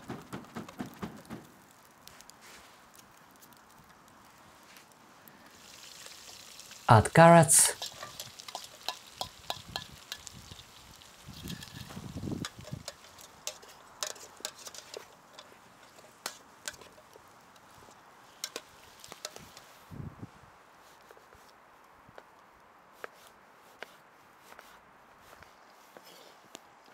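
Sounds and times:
campfire crackling and popping: 0.0 - 20.0
spoon stirring in metal pot: 7.8 - 10.6, 11.4 - 17.2.

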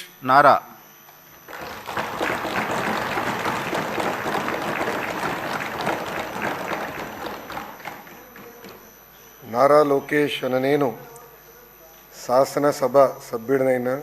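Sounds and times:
crowd applauding: 1.4 - 8.8.

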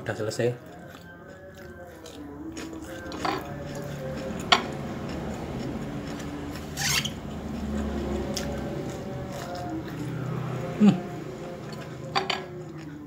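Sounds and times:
steady low hum: 0.0 - 13.0
chewing: 0.2 - 13.0
rough scraping crunch: 6.1 - 9.7.

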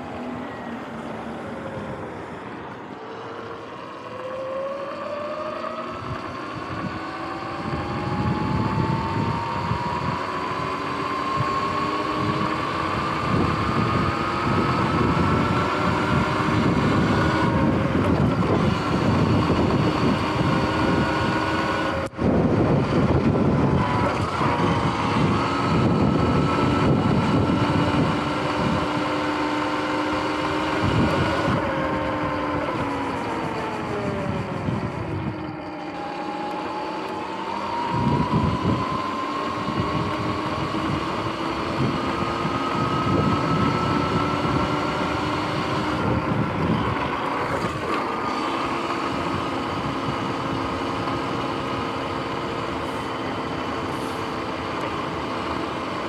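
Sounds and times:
electric dirt bike motor whining: 3.5 - 56.0
wind on microphone: 5.9 - 56.0.

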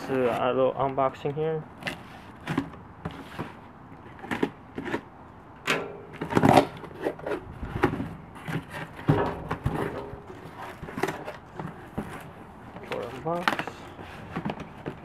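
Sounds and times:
cardboard flaps rustling: 6.1 - 15.0.

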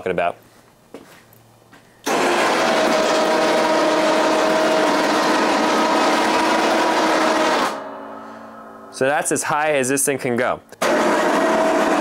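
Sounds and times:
electric winch whining: 2.1 - 8.6, 10.8 - 12.0.

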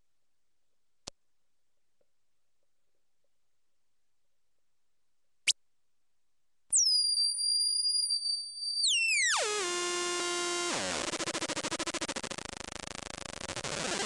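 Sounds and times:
electronic noise box tones: 6.7 - 14.0.

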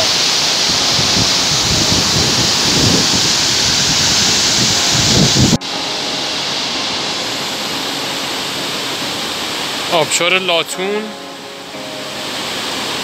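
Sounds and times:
wind buffeting microphone: 0.0 - 5.6
waterfall roaring: 0.0 - 13.0.

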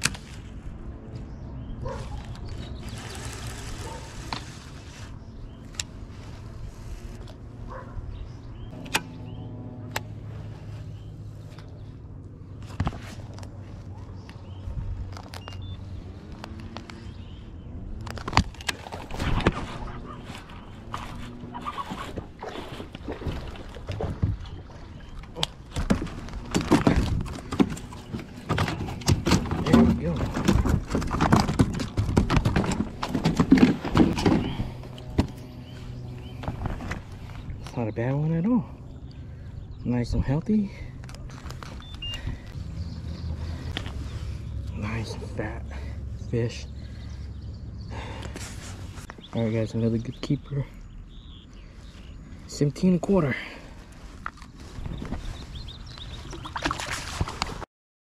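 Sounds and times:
low wind rumble: 0.0 - 52.5
faint bird chirp: 13.7 - 17.8, 34.4 - 53.0.

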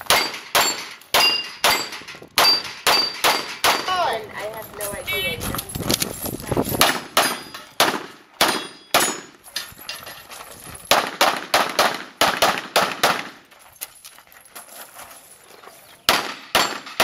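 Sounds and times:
pistol shots with echo: 0.0 - 3.9, 6.8 - 9.3, 10.9 - 13.4, 16.1 - 17.0.

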